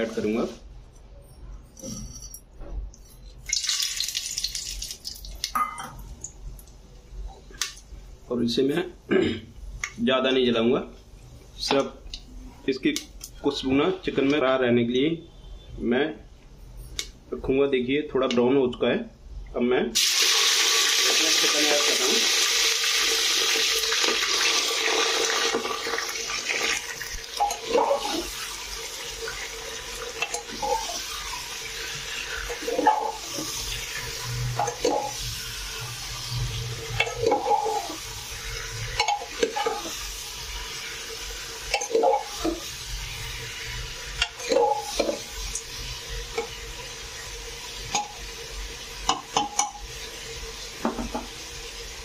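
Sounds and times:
chicken sizzling in hot oil: 3.5 - 5.5, 20.0 - 52.0
metal ladle scraping pot: 30.2 - 31.2, 32.4 - 35.3, 36.9 - 38.0, 38.6 - 40.0, 44.2 - 45.2.

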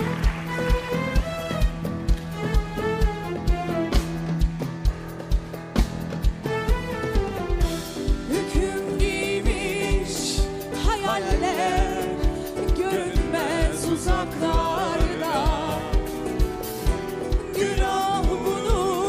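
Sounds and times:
band playing: 0.0 - 19.0
man and woman singing: 8.3 - 16.6, 17.2 - 19.0.

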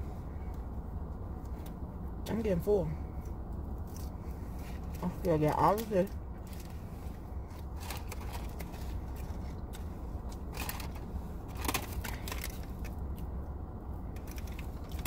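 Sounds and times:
steady low hum: 0.0 - 15.0
paper wrapper crackling: 7.6 - 9.6, 10.4 - 13.0.

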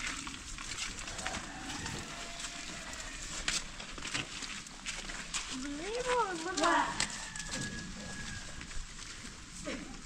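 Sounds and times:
footsteps on muddy ground: 0.0 - 10.0.

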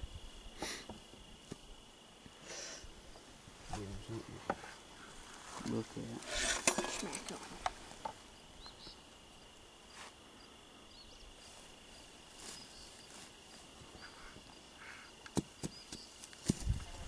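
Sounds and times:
hands handling brush and soil: 11.4 - 14.0, 15.2 - 17.0.

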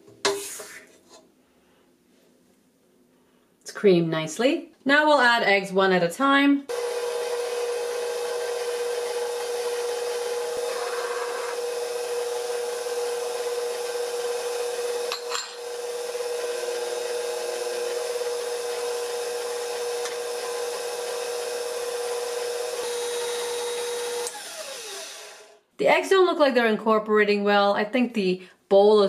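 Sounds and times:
stand mixer running: 6.7 - 25.5.

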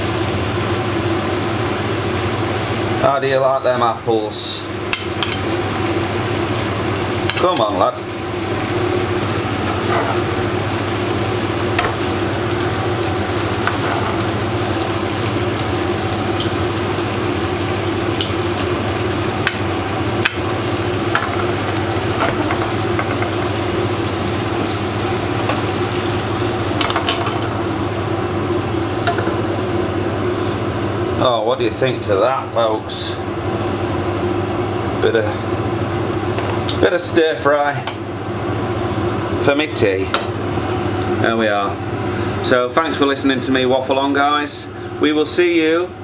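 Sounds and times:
food sizzling in a wok: 0.0 - 31.2.

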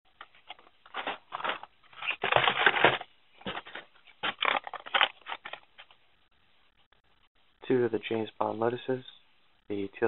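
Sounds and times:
cardboard and plastic rustling: 0.2 - 6.0.

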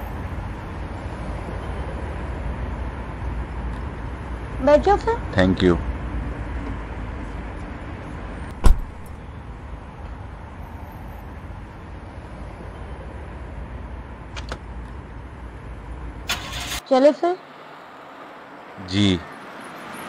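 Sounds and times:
car door slamming: 8.5 - 9.2.

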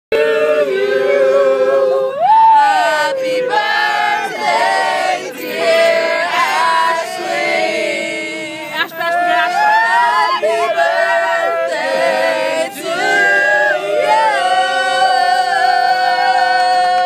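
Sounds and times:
group of voices singing: 0.1 - 17.0.

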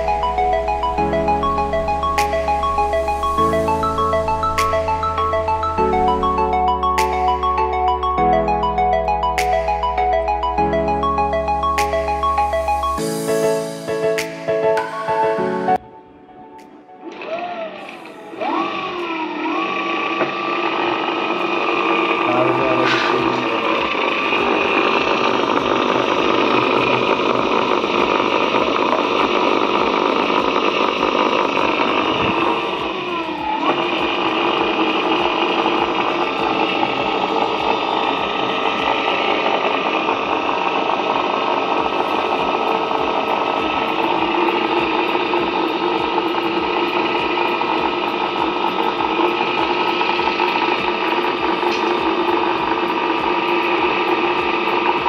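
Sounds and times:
electric motor whine: 17.1 - 55.0.

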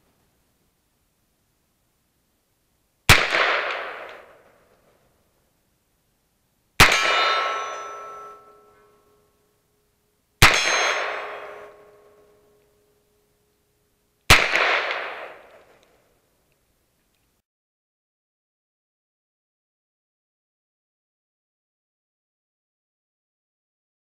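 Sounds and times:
steel target ringing: 6.8 - 13.4.

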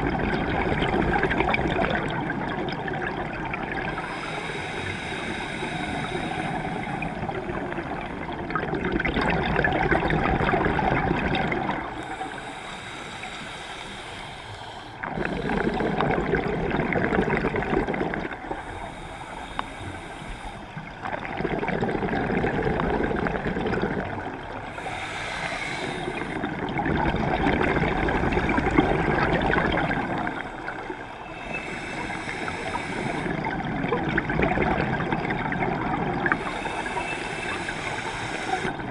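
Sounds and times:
bubbling exhaust underwater: 0.0 - 38.9
regulator hissing inhale: 3.9 - 7.4, 11.9 - 16.0, 18.5 - 21.0, 24.5 - 26.6, 30.1 - 33.6, 36.3 - 38.9.

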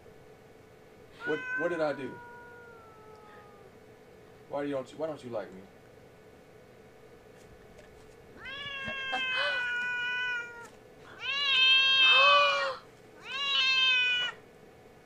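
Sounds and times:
cat yowling angrily: 1.2 - 3.7, 8.4 - 14.4.

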